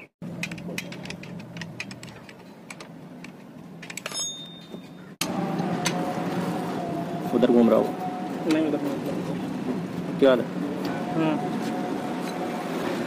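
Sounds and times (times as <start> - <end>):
high metallic ring: 4.1 - 5.2.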